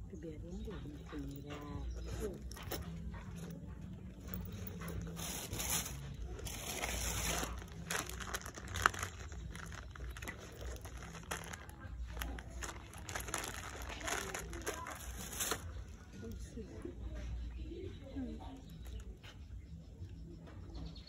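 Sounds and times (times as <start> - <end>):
plastic wrapping crinkling: 4.4 - 16.1.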